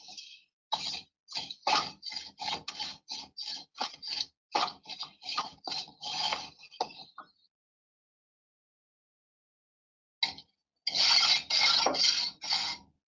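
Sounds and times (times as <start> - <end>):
wooden straightedge scraping mortar: 0.0 - 7.1, 10.9 - 12.9.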